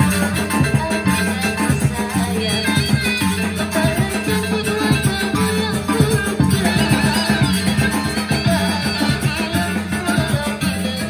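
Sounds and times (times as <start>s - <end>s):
drums and small percussion: 0.0s - 11.0s
bamboo flutes melody: 5.9s - 9.7s.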